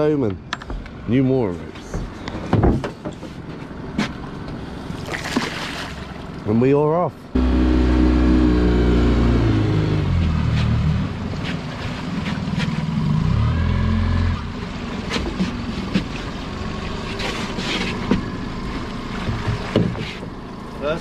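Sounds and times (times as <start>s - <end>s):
outboard motor throttling down: 4.2s - 21.0s
water washing against hull: 4.8s - 6.5s.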